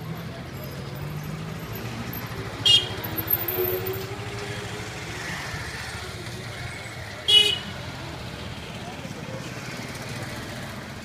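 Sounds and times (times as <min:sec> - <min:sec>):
street traffic: 0:00.0 - 0:11.0
car horn beep: 0:02.6 - 0:03.0, 0:07.3 - 0:07.7.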